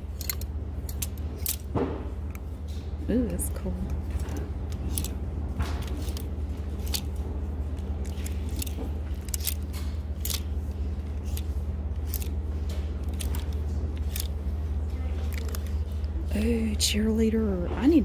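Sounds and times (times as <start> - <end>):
steady low hum: 0.0 - 18.0
plastic hangers clicking on rail: 0.1 - 2.4, 3.8 - 14.4, 15.2 - 16.0.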